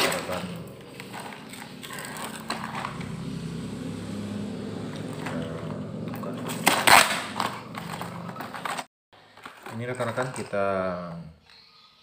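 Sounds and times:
paper wrapper crinkling and tearing: 0:00.0 - 0:03.0.

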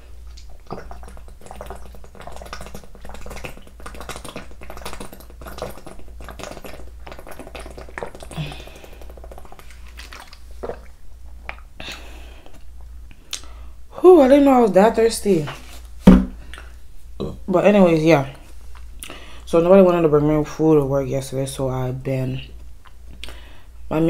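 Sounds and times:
person gulping water: 0:00.1 - 0:13.5.

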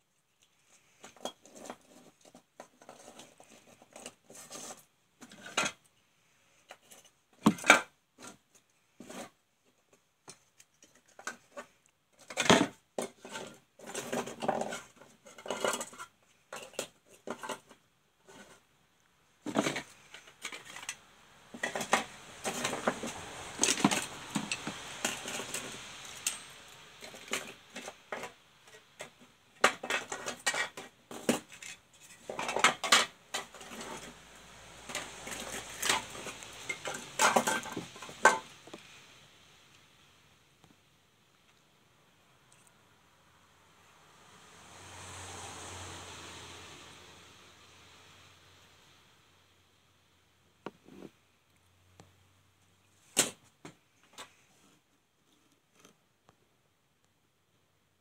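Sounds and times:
rustling and scraping: 0:00.0 - 0:18.8, 0:19.4 - 0:39.2, 0:50.6 - 0:51.3, 0:52.9 - 0:56.1
plastic and metal parts clattering: 0:00.7 - 0:05.9, 0:06.6 - 0:18.6, 0:19.4 - 0:34.2, 0:34.8 - 0:38.8.

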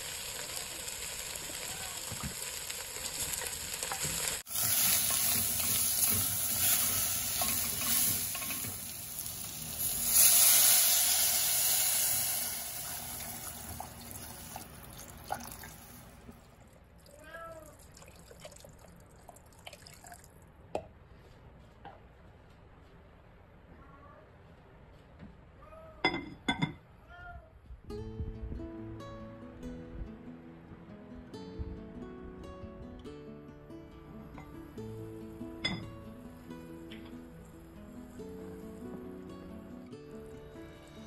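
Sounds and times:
water poured into hot pot: 0:00.0 - 0:16.2, 0:17.8 - 0:20.3
wooden spatula stirring vegetables: 0:03.5 - 0:09.3.

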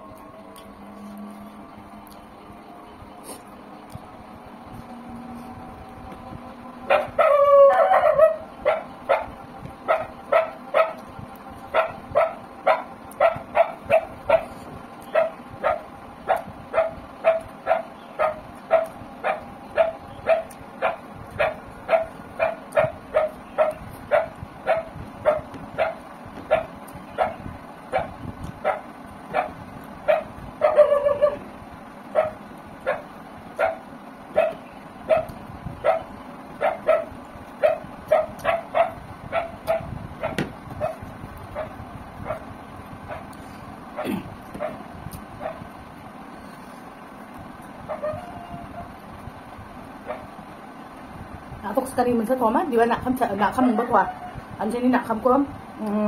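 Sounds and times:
dog barking: 0:06.9 - 0:09.3, 0:09.9 - 0:11.0, 0:11.7 - 0:31.4, 0:32.1 - 0:42.4, 0:43.1 - 0:43.3, 0:44.0 - 0:44.8, 0:45.4 - 0:45.6, 0:47.9 - 0:48.4, 0:50.0 - 0:50.3
dog yelping: 0:06.9 - 0:11.0, 0:11.7 - 0:31.5, 0:32.1 - 0:42.5, 0:44.0 - 0:44.8, 0:45.4 - 0:45.6, 0:47.9 - 0:49.0, 0:50.0 - 0:50.3.

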